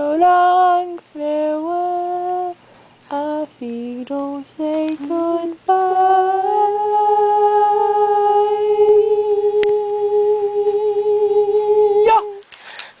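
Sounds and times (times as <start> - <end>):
person singing a high note: 5.1 - 12.4.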